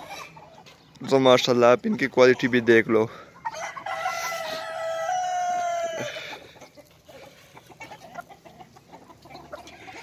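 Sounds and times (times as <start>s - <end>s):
chickens clucking: 0.0s - 10.0s
rooster crowing: 3.5s - 6.3s.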